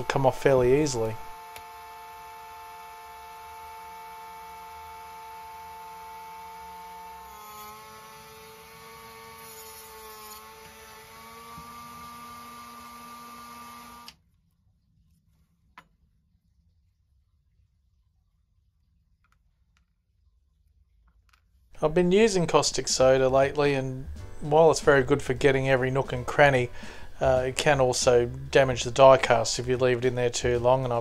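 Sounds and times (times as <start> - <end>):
rotary tool grinding metal: 6.3 - 14.1.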